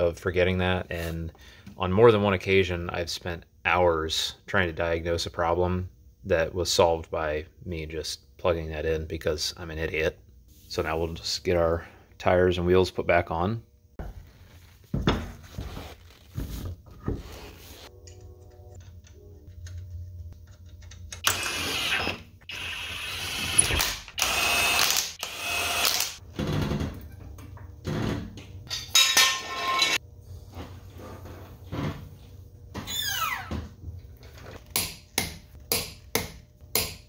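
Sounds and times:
impact wrench: 0:21.2 - 0:26.2.

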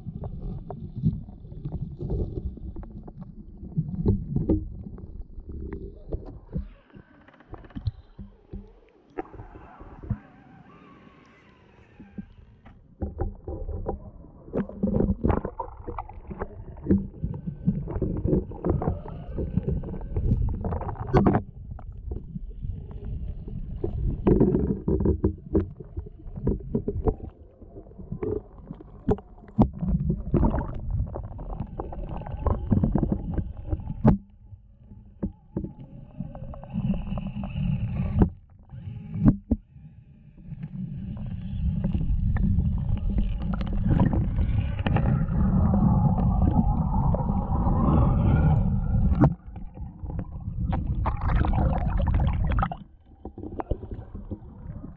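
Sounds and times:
stream water splashing and gurgling: 0:41.8 - 0:54.9.

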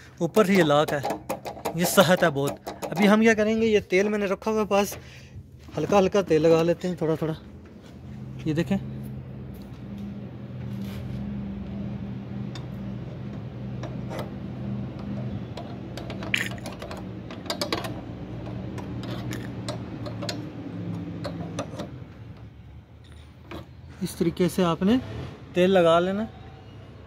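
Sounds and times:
low machine hum: 0:05.0 - 0:23.2.

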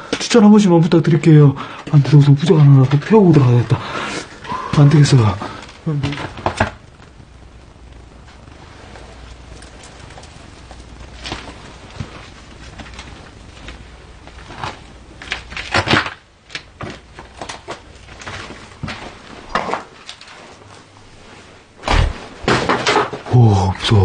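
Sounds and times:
low thump: 0:21.8 - 0:22.3.

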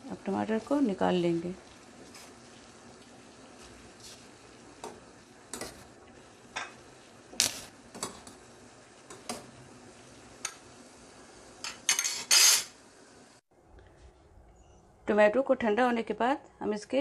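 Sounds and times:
water boiling hiss: 0:00.0 - 0:13.4.

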